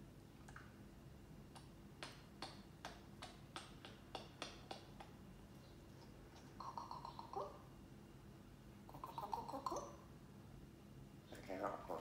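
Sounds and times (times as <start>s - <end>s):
parrot clicking: 1.6s - 5.2s.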